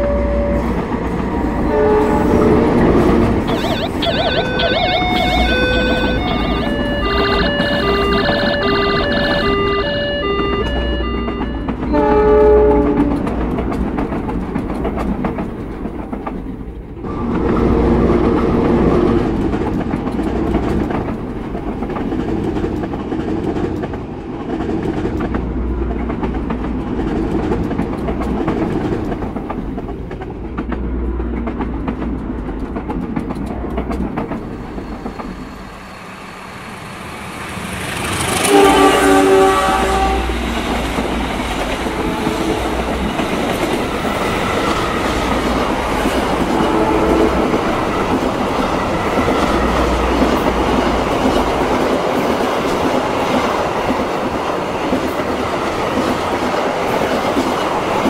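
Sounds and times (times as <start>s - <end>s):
train horn: 0.0s - 0.9s, 1.5s - 3.7s, 4.4s - 13.3s, 38.1s - 41.0s, 41.7s - 43.2s, 46.4s - 48.2s
train rumbling past: 0.0s - 58.0s
wheels clacking over rail joints: 0.8s - 35.8s.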